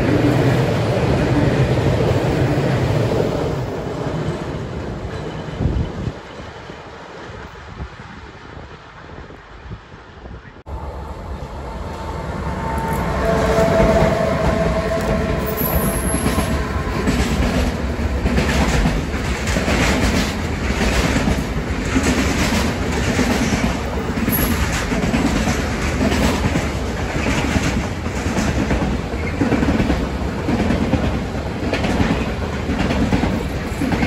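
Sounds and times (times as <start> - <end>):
freight train rumbling past: 0.0 - 34.0
locomotive whine: 10.7 - 19.3.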